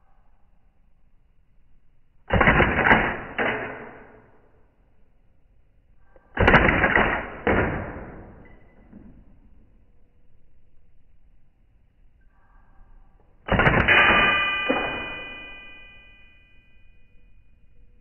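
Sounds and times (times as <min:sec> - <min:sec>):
airsoft rifle bursts: 0:13.5 - 0:15.2.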